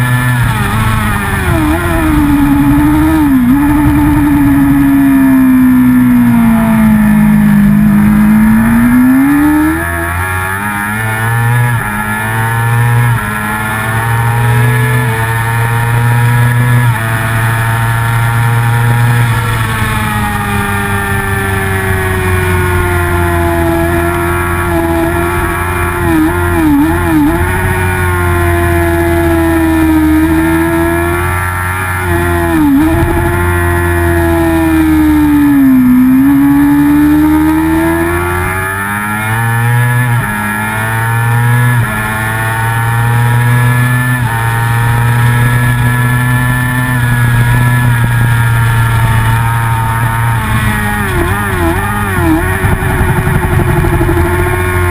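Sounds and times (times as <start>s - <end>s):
racing motorcycle engine revving: 0.0s - 54.9s
wind rush: 0.3s - 6.3s.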